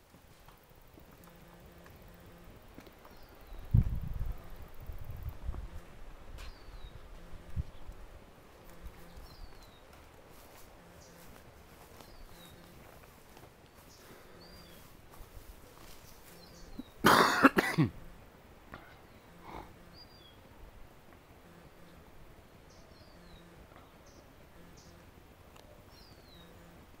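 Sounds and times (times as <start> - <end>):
small birds chirping: 0.2 - 27.0
person coughing: 17.0 - 18.0.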